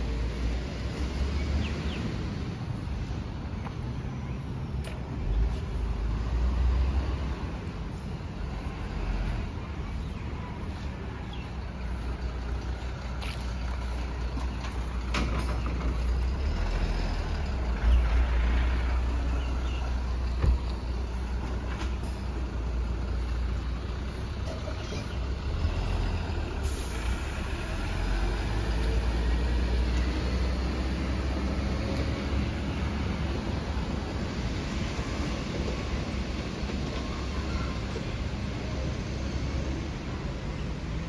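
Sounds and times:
diesel truck engine rumbling: 0.0s - 41.0s.

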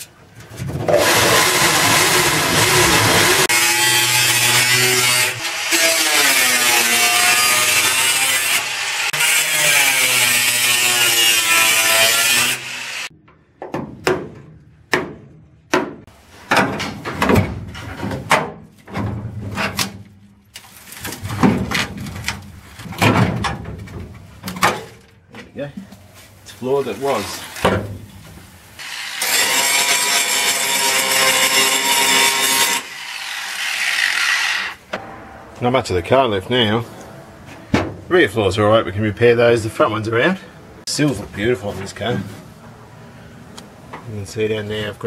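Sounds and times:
electric drill boring through steel: 10.9s - 13.1s, 28.8s - 34.8s
metallic knocks and clanks: 34.9s - 38.1s.

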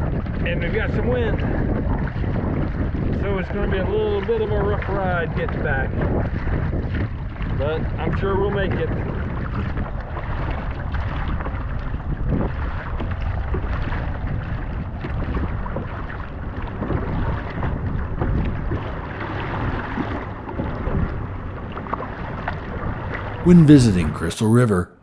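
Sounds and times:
wind buffeting microphone: 0.0s - 23.1s
water splashing against kayak: 4.6s - 23.3s.

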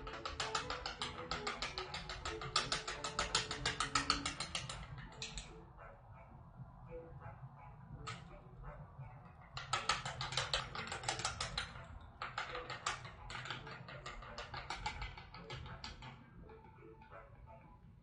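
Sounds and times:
utensils clicking against a bowl: 0.0s - 5.5s, 9.5s - 17.1s.

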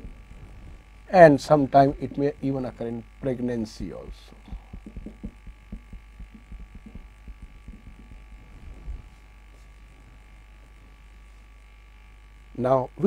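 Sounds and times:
electrical hum: 0.0s - 13.0s
faint high whine: 0.0s - 13.0s
marker tapping on whiteboard: 4.1s - 8.4s.

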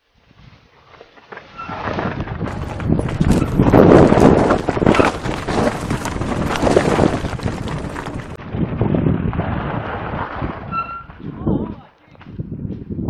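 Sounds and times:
bike rattling: 0.8s - 11.7s
tyres crunching over loose stones: 1.1s - 8.4s.

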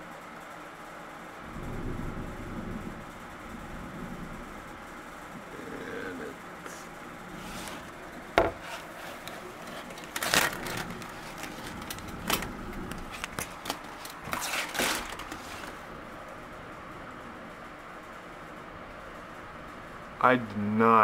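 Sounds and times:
phone handling knocks and scrapes: 8.4s - 9.8s.

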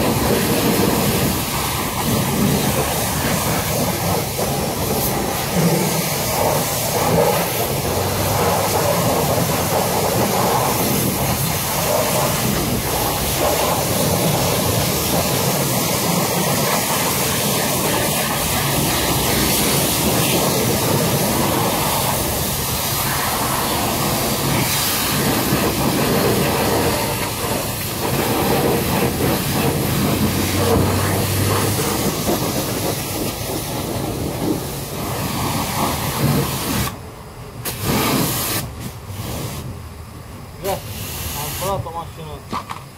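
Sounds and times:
pressure washer jet hissing: 0.0s - 39.8s, 40.6s - 42.0s.

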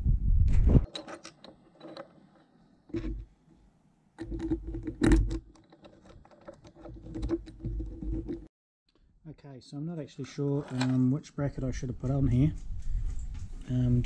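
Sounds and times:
small metal parts clicking and scraping: 0.8s - 3.3s, 4.2s - 8.5s, 10.6s - 11.0s.

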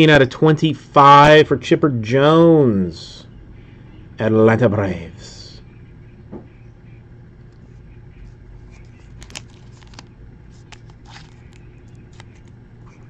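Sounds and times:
steady low hum: 0.0s - 13.0s
trading cards being handled: 7.4s - 13.0s.

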